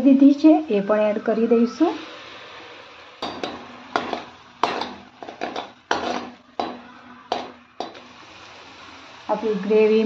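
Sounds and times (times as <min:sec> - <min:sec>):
spoon clinking against a metal pot: 0:03.2 - 0:08.0.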